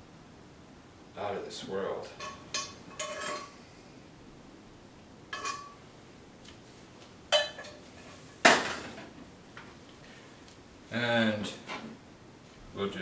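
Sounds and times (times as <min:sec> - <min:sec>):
utensil clinking against skillet: 0:05.3 - 0:05.8.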